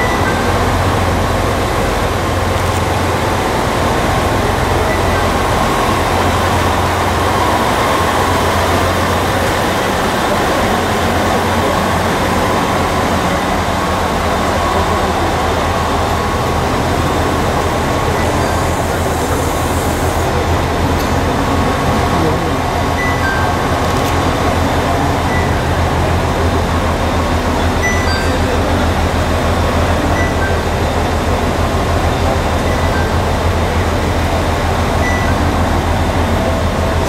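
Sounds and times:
train diesel engines idling: 0:00.0 - 0:37.0.

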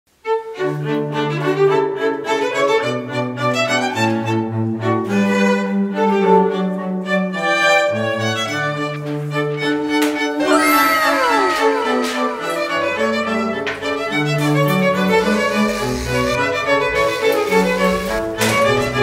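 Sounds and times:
violins holding notes: 0:10.4 - 0:14.0.

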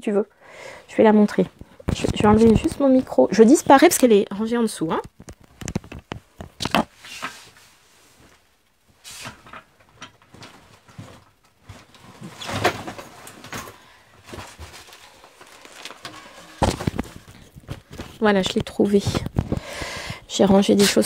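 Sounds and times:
rummaging knocks clicks and rustles: 0:05.0 - 0:07.5, 0:09.2 - 0:19.7.

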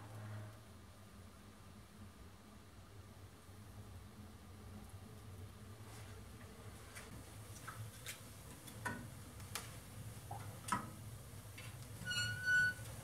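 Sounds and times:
wood fire crackling in stove: 0:03.3 - 0:13.0
stove door squeaking open: 0:12.0 - 0:13.0.

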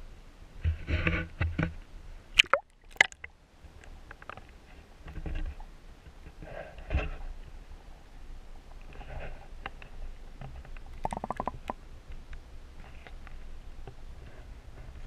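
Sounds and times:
water splashing and gurgling: 0:02.4 - 0:03.3, 0:11.0 - 0:11.8
muffled underwater bubbling: 0:11.0 - 0:11.8
sharp clicks: 0:11.0 - 0:11.8.

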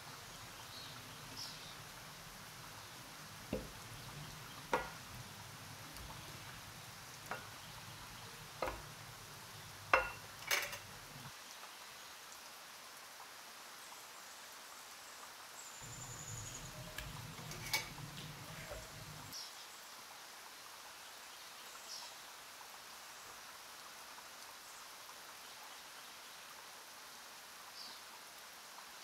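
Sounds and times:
chicken wings tapping in bowl: 0:04.7 - 0:05.0, 0:07.2 - 0:07.7, 0:08.6 - 0:08.9
low background hum: 0:15.8 - 0:19.3.

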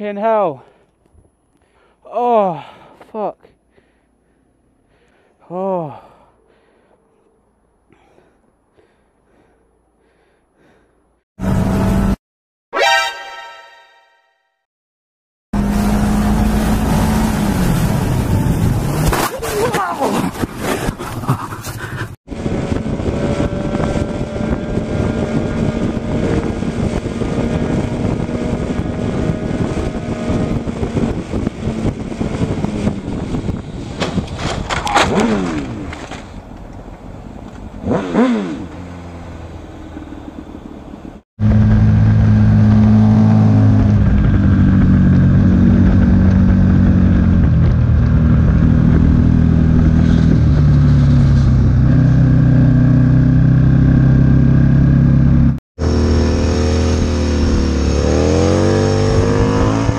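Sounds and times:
traffic noise: 0:00.6 - 0:12.0, 0:32.9 - 0:54.0
falling pitch sweeps: 0:12.8 - 0:14.4
wind noise: 0:17.5 - 0:36.6, 0:41.4 - 0:53.7, 0:56.4 - 0:59.9
motorcycle engine: 0:41.4 - 0:59.9.

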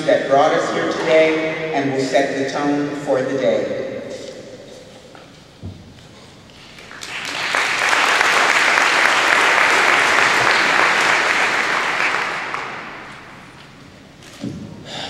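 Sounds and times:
audience applauding: 0:06.8 - 0:13.5.

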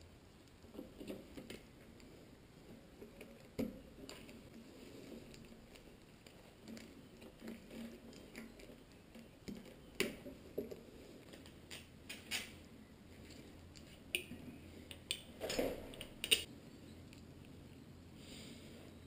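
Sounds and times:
cables rustling: 0:00.0 - 0:18.0
clicks of plastic connectors: 0:11.2 - 0:12.6, 0:13.3 - 0:16.5.

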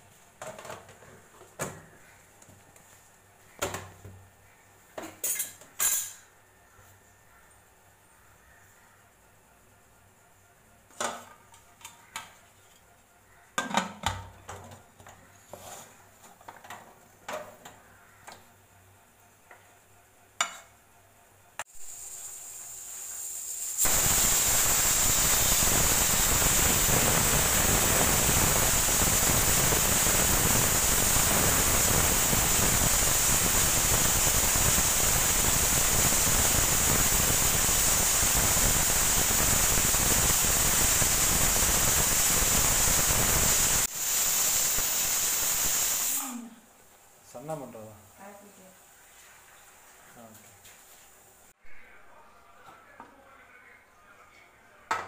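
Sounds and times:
pressure cooker hissing: 0:21.6 - 0:46.4.

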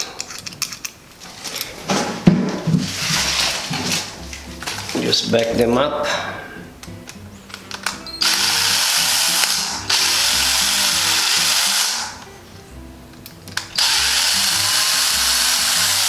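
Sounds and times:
cordless drill running: 0:08.2 - 0:12.2, 0:13.7 - 0:16.0.

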